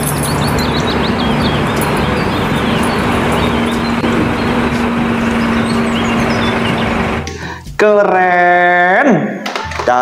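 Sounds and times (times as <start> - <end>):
birds chirping: 0.0 - 7.6
bus engine rumbling: 0.0 - 7.7.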